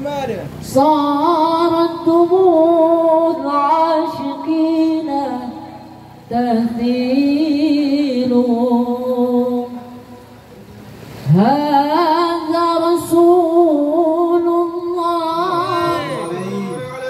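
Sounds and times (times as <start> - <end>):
man singing through a microphone: 14.1 - 17.0.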